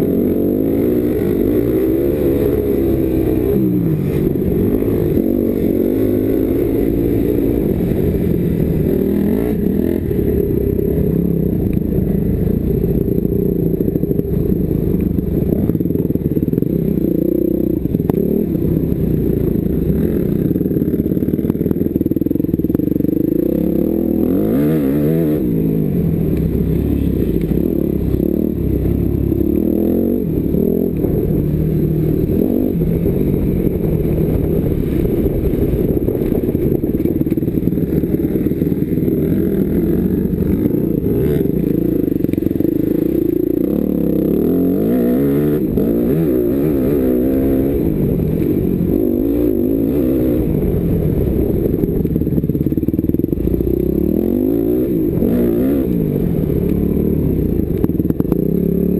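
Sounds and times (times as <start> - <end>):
motocross bike engine revving: 0.0 - 58.9
wind rumble on microphone: 0.0 - 58.9.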